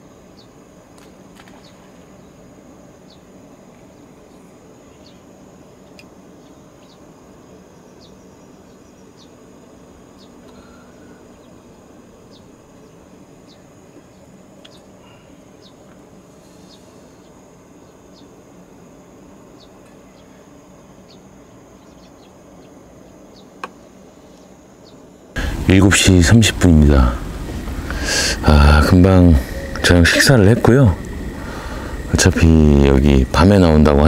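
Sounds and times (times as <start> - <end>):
insects chirping: 0.0 - 34.0
low background hum: 0.0 - 34.0
high-pitched drone: 25.4 - 34.0.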